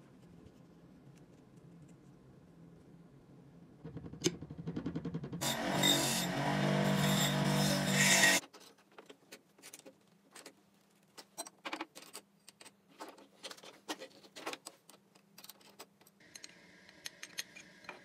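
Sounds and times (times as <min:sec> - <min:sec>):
faint low hum: 0:00.0 - 0:05.3.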